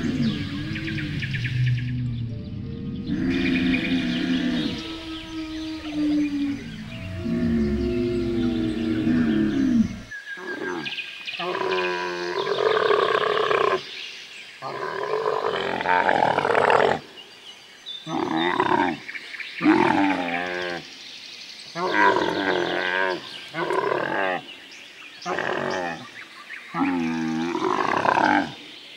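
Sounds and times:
camels bellowing: 0.0 - 2.3.

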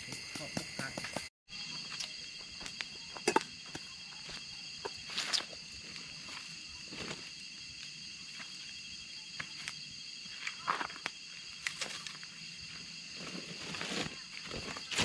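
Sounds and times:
night insects shrilling: 0.0 - 15.0
footsteps on dry ground: 1.8 - 8.8.

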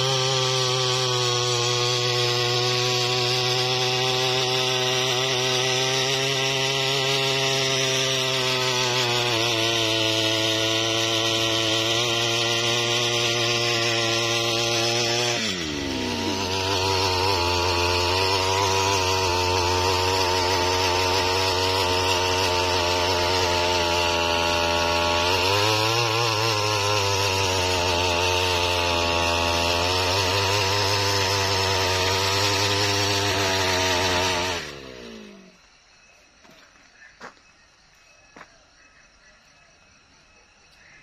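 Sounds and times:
tiller tines digging soil: 0.0 - 35.7
brush-cutter engine running: 0.0 - 35.8.

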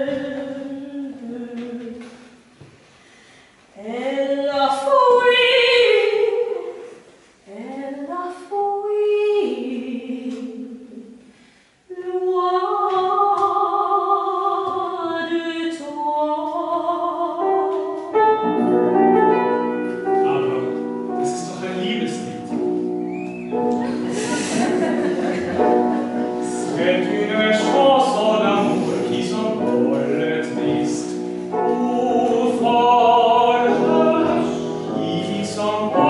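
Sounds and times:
woman singing operetta: 0.0 - 2.3, 3.8 - 6.8, 7.5 - 11.1, 11.9 - 18.4, 26.4 - 36.0
piano chords: 16.6 - 36.0.

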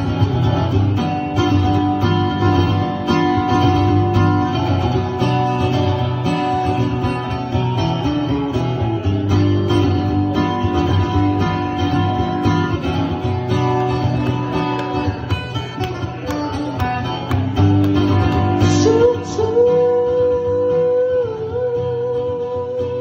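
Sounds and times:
acoustic guitar picked and strummed: 0.0 - 23.0.

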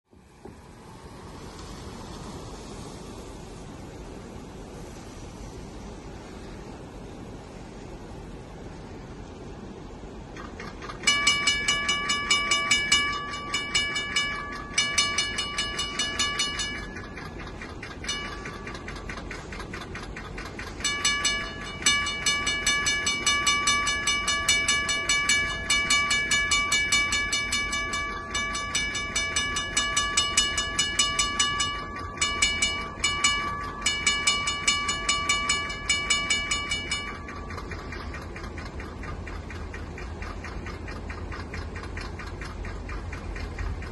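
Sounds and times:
crossing bell ringing: 11.0 - 19.5, 20.7 - 38.4.

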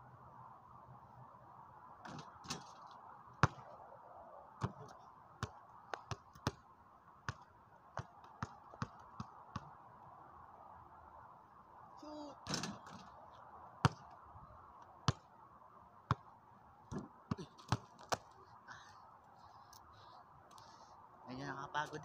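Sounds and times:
basketball bouncing on pavement: 2.0 - 2.8, 3.4 - 3.7, 4.6 - 9.7, 13.8 - 14.2, 15.0 - 15.3, 16.1 - 16.3, 16.9 - 18.4.

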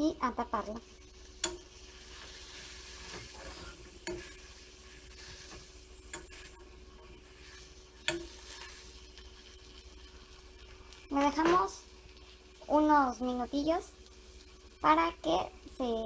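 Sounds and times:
food sizzling in a frying pan: 0.0 - 16.0
metal fork clicking on pan: 1.4 - 1.8, 4.0 - 4.4, 6.1 - 6.6, 8.0 - 8.7.

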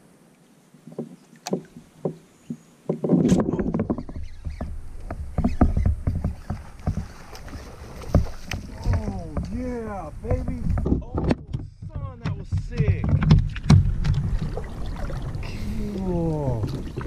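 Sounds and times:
gear knocking on plastic hull: 2.9 - 14.7
low rumble: 13.6 - 17.0.

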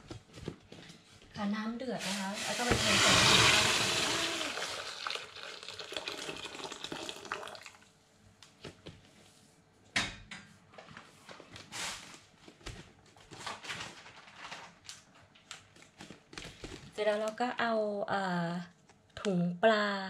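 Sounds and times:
boiling water pouring into pot: 2.0 - 7.9.

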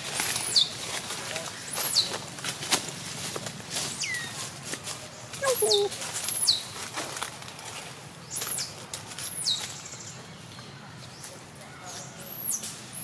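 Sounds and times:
low bird call: 5.4 - 6.0.

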